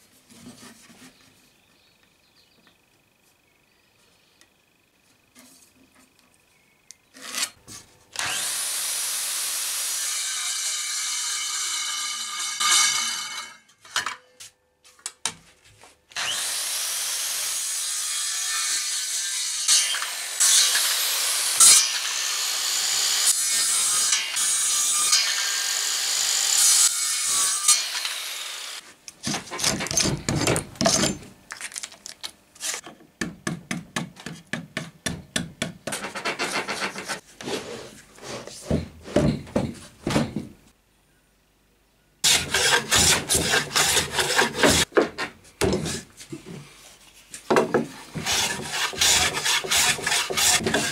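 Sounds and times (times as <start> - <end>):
hand tool scraping wood: 0.0 - 1.4, 7.1 - 7.9, 35.8 - 39.8, 42.2 - 50.9
saw cutting wood: 8.2 - 13.6, 16.2 - 30.1, 42.2 - 44.9, 48.0 - 50.9.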